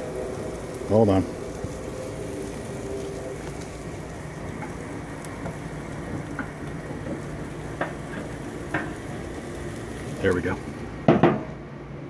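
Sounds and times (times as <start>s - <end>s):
steak sizzling over charcoal: 0.0s - 11.6s.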